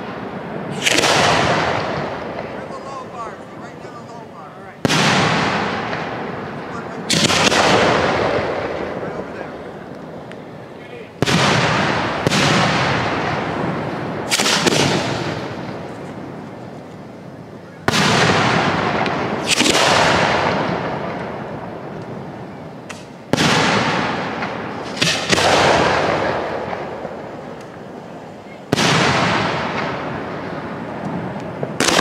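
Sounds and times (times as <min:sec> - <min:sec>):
fireworks booming with echo: 0:00.0 - 0:32.0.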